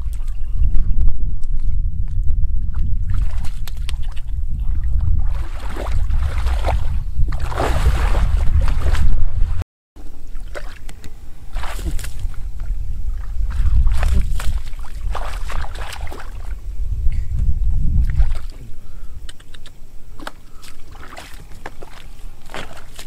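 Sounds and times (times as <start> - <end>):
wind rumble on microphone: 0.0 - 23.0
water sloshing and splashing: 2.6 - 16.6, 18.0 - 18.6, 20.2 - 23.0.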